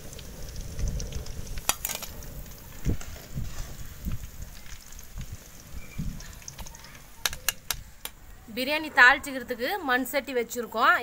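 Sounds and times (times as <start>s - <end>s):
wind rumbling on microphone: 0.0s - 6.7s.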